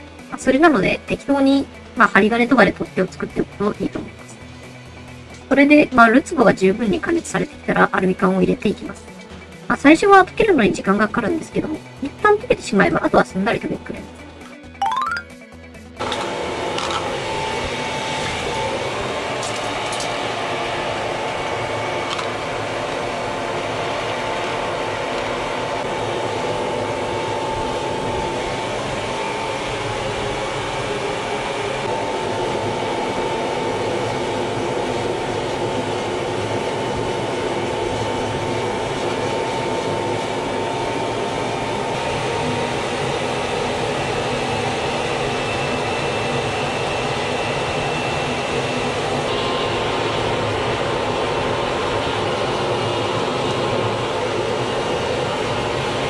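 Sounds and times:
blower motor whine: 16.0 - 56.0.

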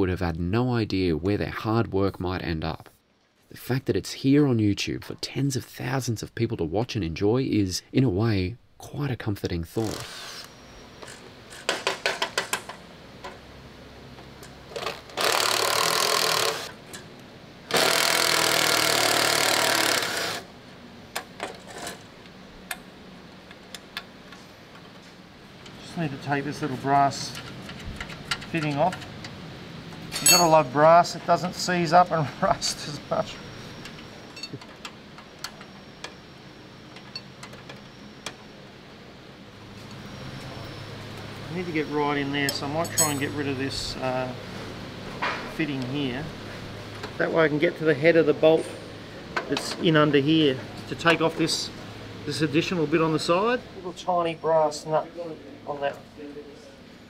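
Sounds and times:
steady low hum: 20.3 - 57.0.

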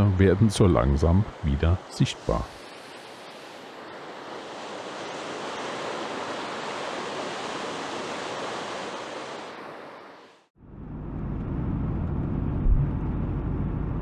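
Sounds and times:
water rushing: 0.0 - 10.5.

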